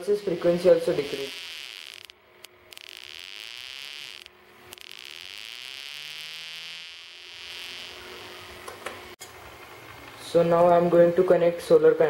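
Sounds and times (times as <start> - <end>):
high buzzing whine: 0.0 - 9.2.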